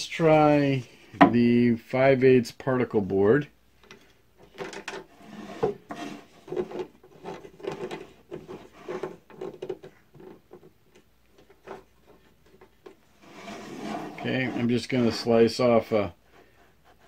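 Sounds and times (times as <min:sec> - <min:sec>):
board sliding on metal table: 0:05.1 - 0:06.4, 0:13.1 - 0:14.7.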